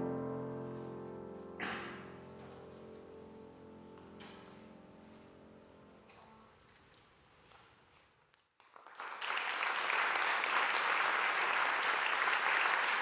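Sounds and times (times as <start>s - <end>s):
audience applauding: 8.6s - 13.0s.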